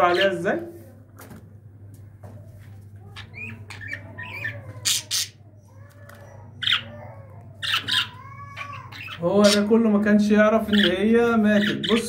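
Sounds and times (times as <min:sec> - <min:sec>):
budgerigar chirping: 0:03.2 - 0:05.4, 0:06.6 - 0:09.7, 0:10.7 - 0:12.0
budgerigar harsh squawks: 0:03.2 - 0:05.4, 0:06.5 - 0:07.0, 0:07.6 - 0:09.7.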